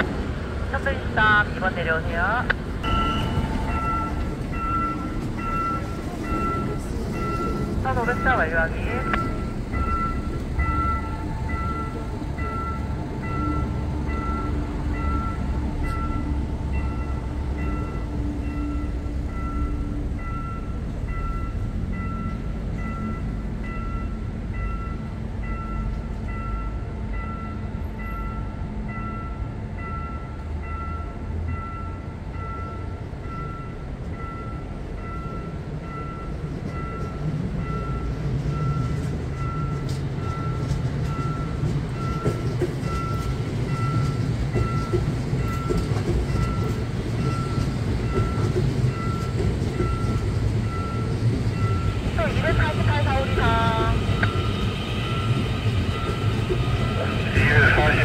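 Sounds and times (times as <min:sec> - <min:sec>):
approaching train rumble: 0:00.0 - 0:58.0
level crossing bell dinging: 0:02.8 - 0:24.1.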